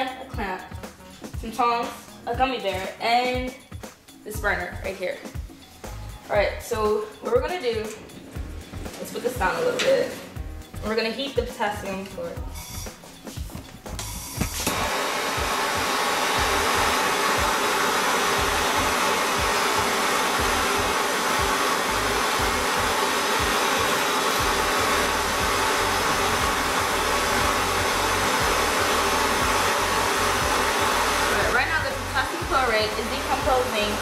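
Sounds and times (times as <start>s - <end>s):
gas torch hissing: 12.4s - 13.3s, 14.0s - 34.0s.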